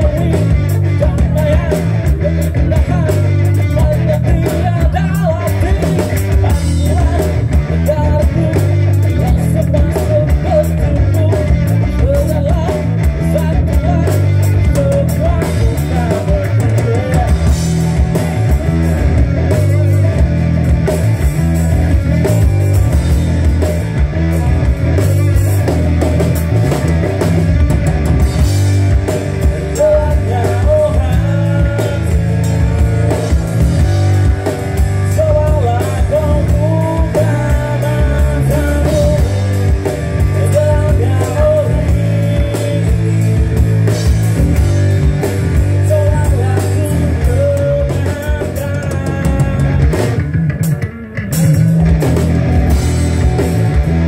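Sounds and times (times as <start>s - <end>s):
person singing into microphone: 0.0s - 18.1s, 29.4s - 43.6s, 45.6s - 50.2s
drum kit beat: 0.0s - 54.0s
electric bass guitar: 0.0s - 54.0s.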